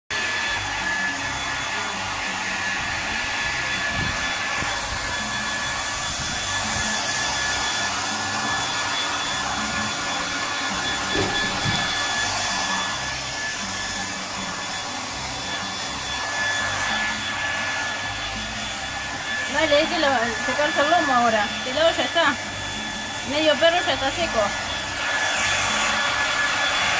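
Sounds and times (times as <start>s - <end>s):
hair dryer blowing: 0.1s - 26.9s.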